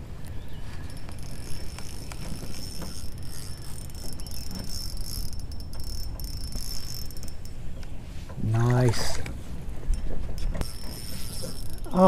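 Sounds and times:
insect chorus: 0.6s - 7.6s.

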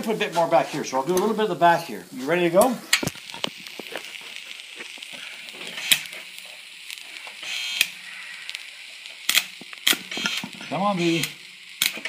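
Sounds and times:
faint hiss: 0.0s - 12.0s
welding arc buzz: 0.0s - 12.0s
welding rod clicks: 1.1s - 1.4s, 2.6s - 4.1s, 5.7s - 12.0s.

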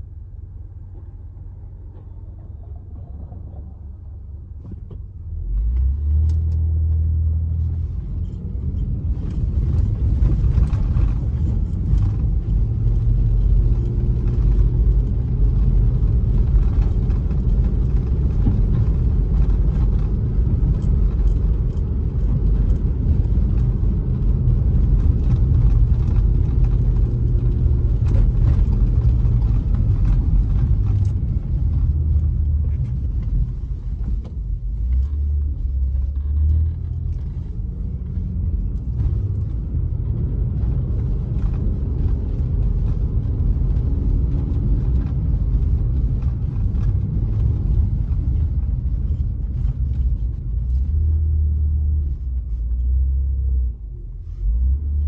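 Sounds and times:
car engine rumbling: 0.0s - 55.0s
road noise inside car: 0.0s - 55.0s.

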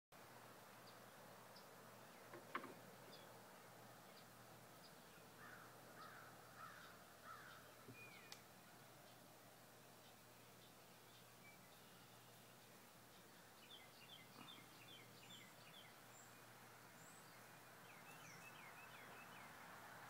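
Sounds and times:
faint birds chirping: 0.2s - 20.0s
harsh bird calls: 4.1s - 8.4s, 13.1s - 16.4s.

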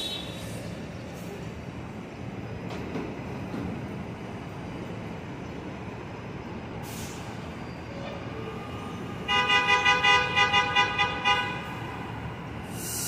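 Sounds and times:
traffic and rail background: 0.0s - 13.0s
short hiss: 12.7s - 13.0s.

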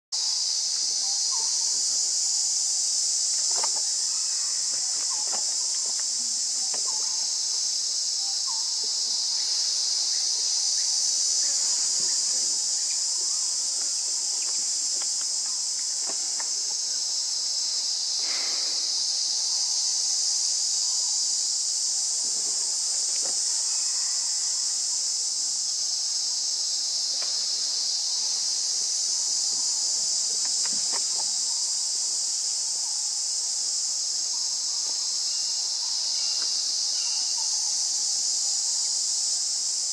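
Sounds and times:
insect chorus drone: 0.2s - 39.9s.

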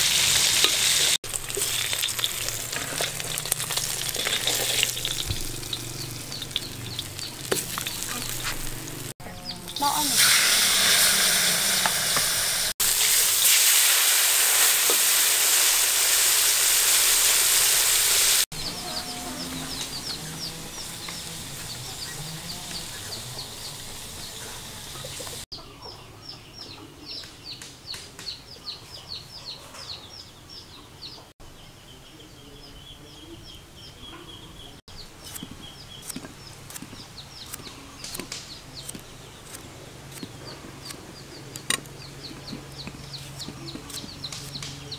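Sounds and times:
fish sizzling in hot oil: 0.0s - 9.1s, 9.8s - 18.5s
chickens clucking: 2.0s - 12.7s, 18.5s - 31.3s.

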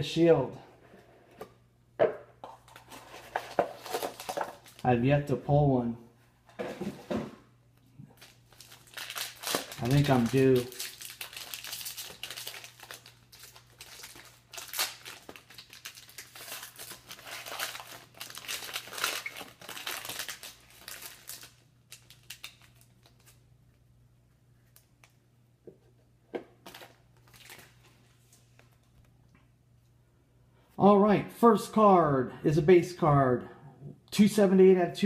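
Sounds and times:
foil pack crinkling: 2.8s - 4.9s, 8.1s - 23.4s, 26.6s - 28.6s.

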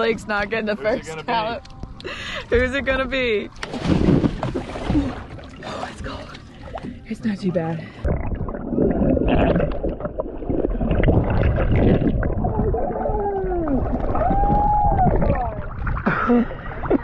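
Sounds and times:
muffled underwater rushing water: 3.8s - 17.0s
underwater bubbling: 7.8s - 17.0s.

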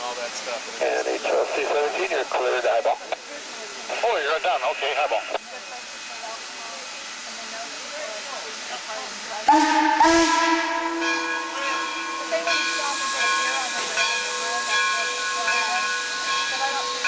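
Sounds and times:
steam hissing: 0.0s - 17.0s
steam whistle blast: 9.4s - 14.7s.

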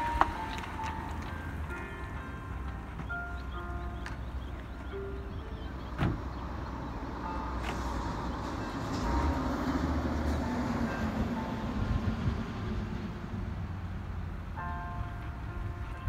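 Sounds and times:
tyre noise on asphalt: 0.0s - 5.0s.

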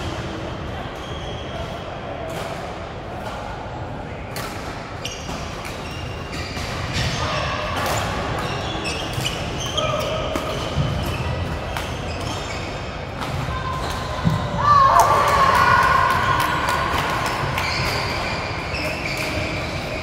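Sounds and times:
shoes squeaking on floor: 5.0s - 7.4s, 8.4s - 13.2s, 17.6s - 20.0s.

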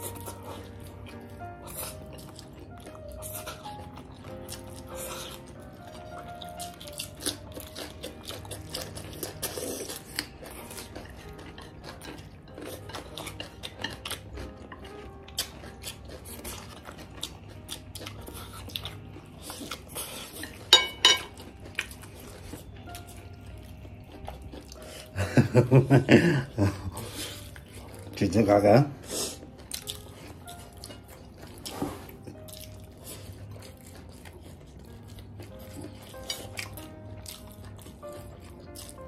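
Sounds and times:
chewing and slurping noodles: 0.0s - 39.0s
chopsticks clicking on plates: 20.4s - 21.4s.

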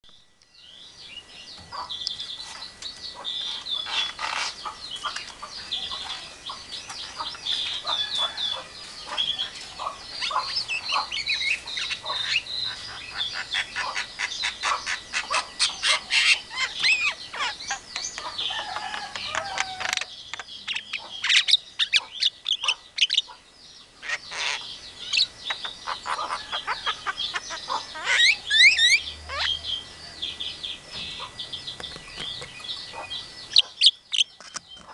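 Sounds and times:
myna chattering calls: 3.1s - 23.4s, 24.0s - 29.6s.

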